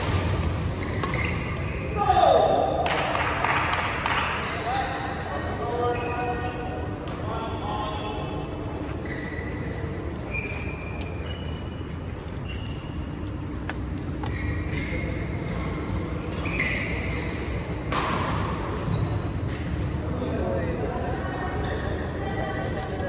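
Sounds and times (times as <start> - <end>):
shoes squeaking on court: 0.7 - 2.0, 5.8 - 6.5, 7.3 - 17.6
racket hitting shuttlecock: 17.9 - 18.6.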